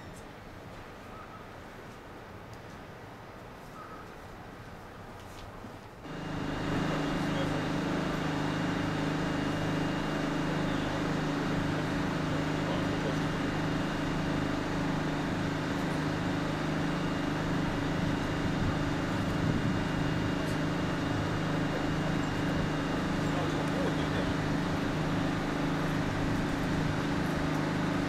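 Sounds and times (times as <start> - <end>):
train low hum: 5.7 - 28.0
faint high whine: 6.1 - 28.0.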